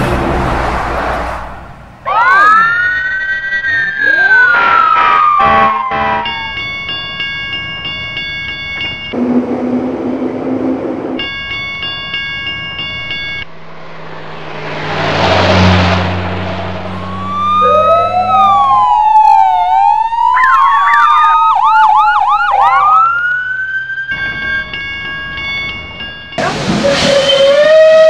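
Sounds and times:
vehicle passing: 0.0 - 2.0, 12.8 - 20.2
police siren wailing and yelping: 2.1 - 6.9, 16.9 - 25.7, 26.4 - 28.0
level crossing warning tone: 2.2 - 13.6, 16.8 - 28.0.

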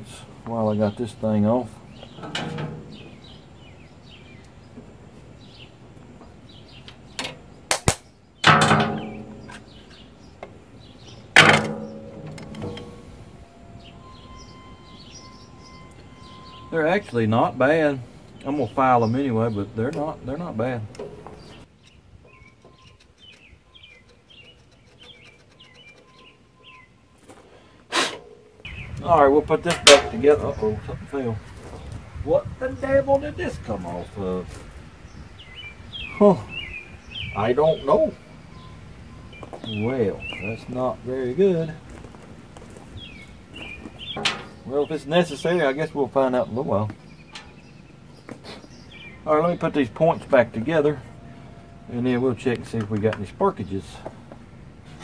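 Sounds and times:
birds chirping faintly: 0.0 - 55.0
metal tools being handled: 2.1 - 3.2, 11.4 - 13.8, 29.6 - 30.4, 44.1 - 44.7
loud metallic clanks: 2.1 - 3.4, 7.2 - 10.0, 11.3 - 16.6, 29.5 - 30.6, 44.0 - 44.7, 47.2 - 47.7
sharp clicks: 6.8 - 8.1.

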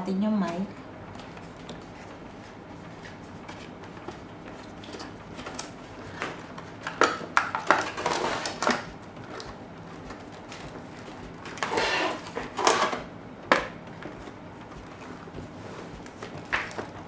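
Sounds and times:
cardboard crackles and scrapes: 7.9 - 13.0.

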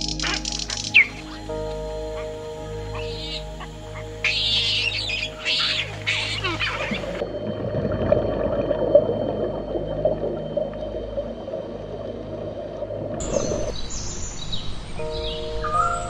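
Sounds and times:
bird chirps: 0.0 - 7.2
underwater bubbling and gurgling: 0.0 - 13.9.

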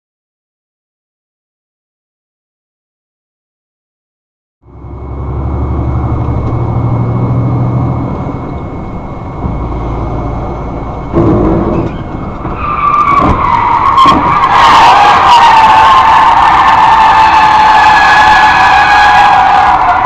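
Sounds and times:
vehicle engine running: 4.6 - 16.8
tyres squealing in a skid: 5.0 - 20.0.

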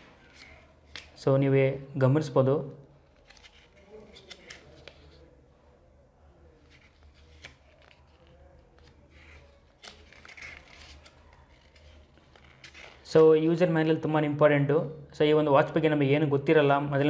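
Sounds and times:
paper pages turning: 0.1 - 1.2, 3.0 - 5.3, 6.5 - 13.1.

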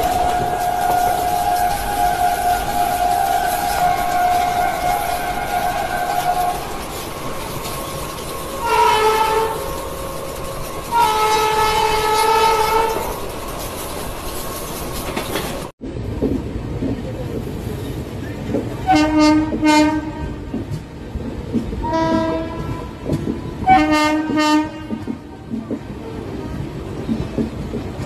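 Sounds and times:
train horn blasts: 0.0 - 6.8, 8.6 - 9.8, 10.8 - 13.2, 18.8 - 20.8, 21.8 - 25.3
train running on rails: 0.0 - 28.0.

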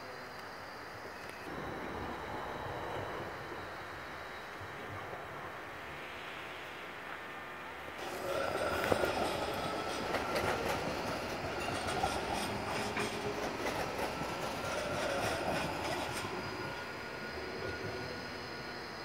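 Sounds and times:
tram running on rails: 0.0 - 19.0
wheels clicking over track: 8.0 - 16.4.

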